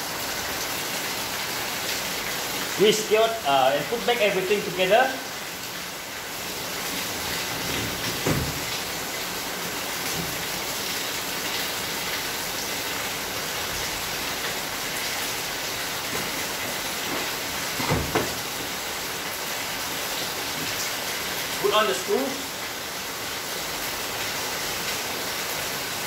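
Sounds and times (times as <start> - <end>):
dull knocks on plastic panel: 7.8 - 8.6, 17.8 - 18.4.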